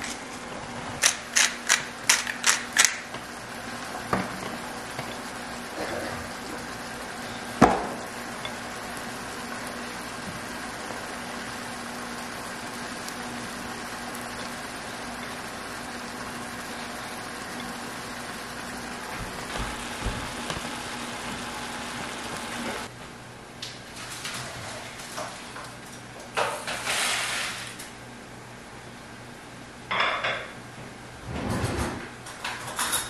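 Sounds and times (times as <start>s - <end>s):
mushrooms sizzling in a pan: 0.6s - 22.9s.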